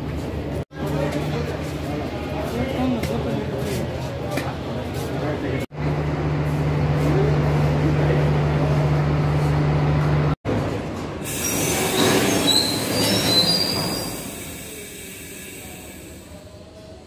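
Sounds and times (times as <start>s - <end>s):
train wheels squealing: 11.2s - 16.3s.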